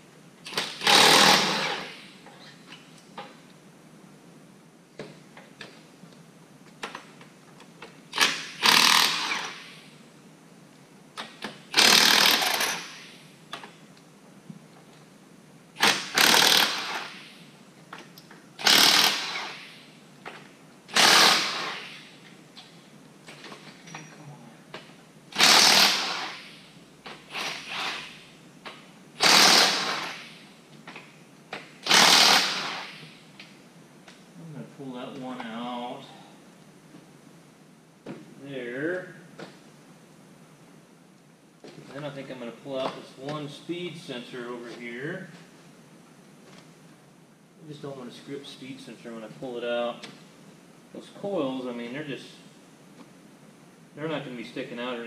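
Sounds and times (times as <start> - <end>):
pneumatic impact wrench hammering: 0.4 - 2.1, 8.1 - 9.8, 11.2 - 13.2, 15.8 - 17.4, 18.6 - 19.8, 20.9 - 22.2, 25.3 - 30.4, 31.6 - 33.2.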